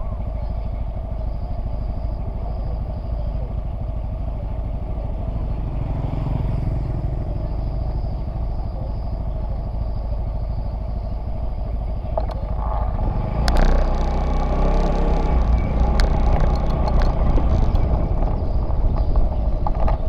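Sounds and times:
small motorcycle engine idling: 0.0 - 20.0
motorcycle passing: 4.4 - 9.5, 12.2 - 20.0.

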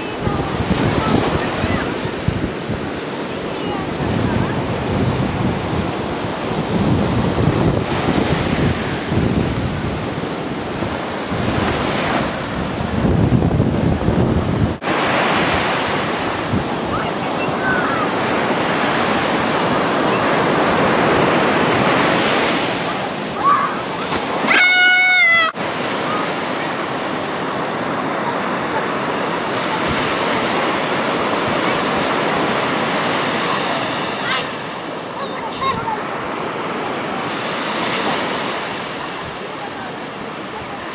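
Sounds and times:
wind buffeting microphone: 0.0 - 24.5
surf breaking on beach: 0.0 - 40.9
high-pitched call: 24.4 - 25.6.

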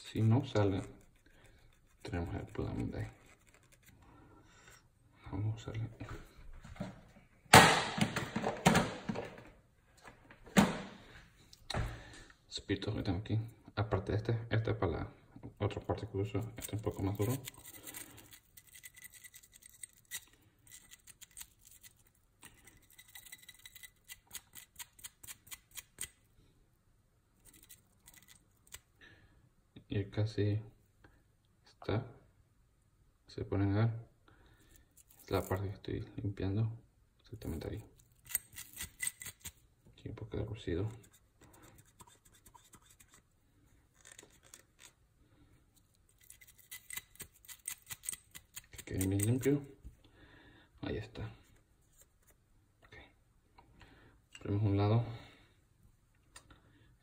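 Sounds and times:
scrubbing of pistol part: 0.2 - 4.8, 16.3 - 26.2, 27.4 - 28.9, 38.0 - 39.6, 40.8 - 49.6
brush scrubbing metal: 41.0 - 43.2.

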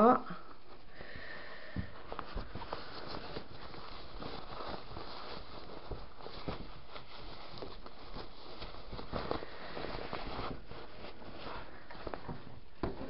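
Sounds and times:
fabric bag rustling: 1.9 - 13.0.

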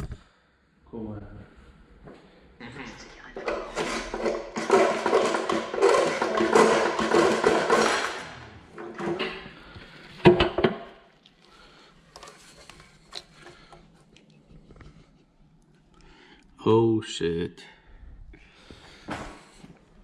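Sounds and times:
tools scraping and clattering: 3.4 - 10.9.

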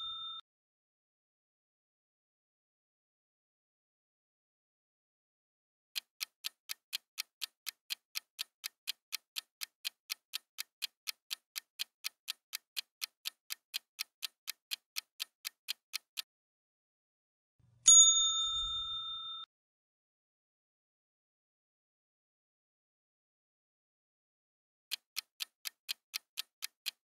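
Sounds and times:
loud bell ding: 0.0 - 0.4, 17.9 - 19.5
timer clock ticking: 6.0 - 16.3, 24.9 - 27.0.

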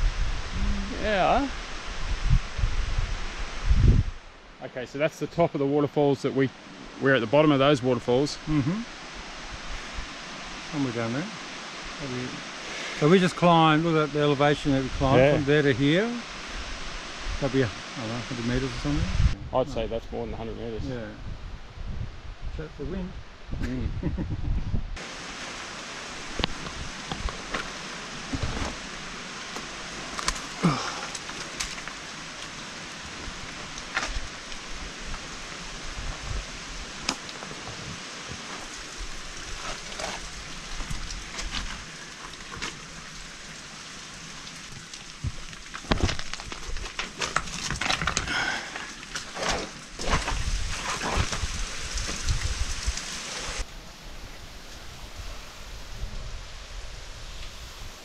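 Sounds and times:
waterfall rushing: 25.0 - 45.8
person moving over rocks and brush: 26.0 - 43.8, 44.4 - 53.2
water dripping: 38.3 - 50.5, 51.2 - 53.6.

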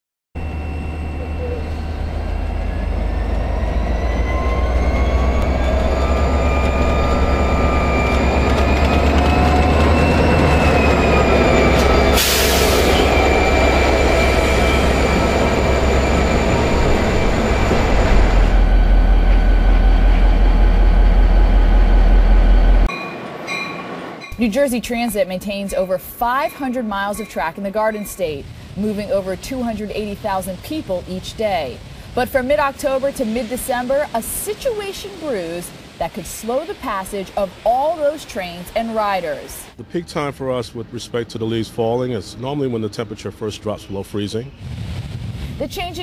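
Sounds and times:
train locomotive rumble: 0.4 - 46.0
loud hiss: 12.1 - 13.2, 28.2 - 39.8.

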